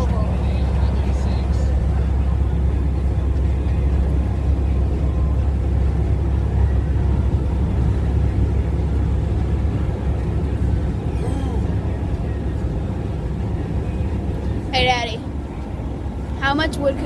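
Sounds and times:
truck engine rumble: 0.0 - 17.0.

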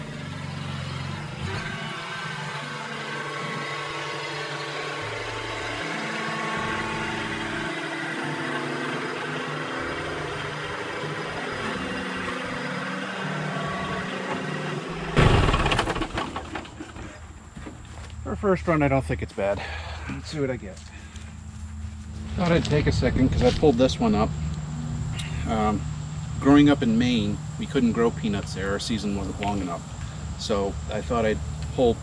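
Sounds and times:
tractor diesel engine running: 0.0 - 32.0
sudden loud noise: 10.2 - 16.8.

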